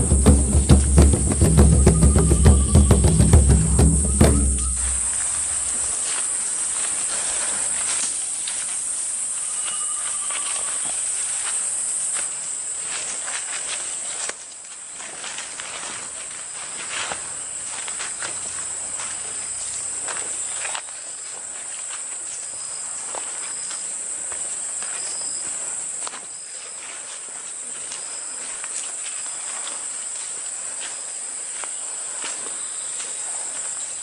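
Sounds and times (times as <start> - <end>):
short high notes: 0.0 - 5.9
forest insects droning: 0.0 - 34.0.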